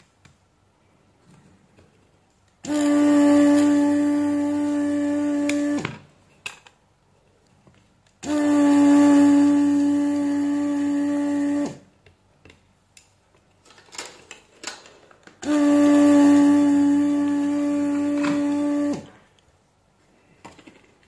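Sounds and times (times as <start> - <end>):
small electric motor humming: 2.6 - 6.0, 8.2 - 11.9, 15.4 - 19.1.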